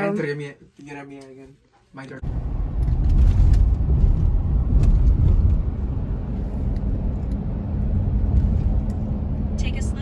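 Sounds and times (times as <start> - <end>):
road and wind noise inside car: 2.2 - 10.0.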